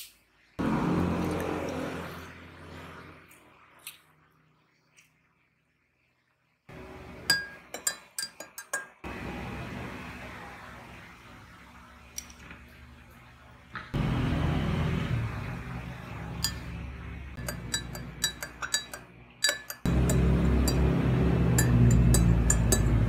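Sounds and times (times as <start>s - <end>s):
spoon clinking against glass: 7.2s - 9.0s, 16.4s - 16.8s, 17.4s - 23.0s.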